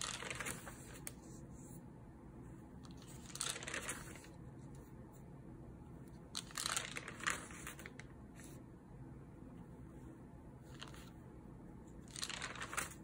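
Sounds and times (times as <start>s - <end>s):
notebook pages rustling: 0.0s - 1.8s, 2.9s - 5.0s, 6.4s - 8.6s, 10.6s - 11.2s, 11.9s - 13.0s.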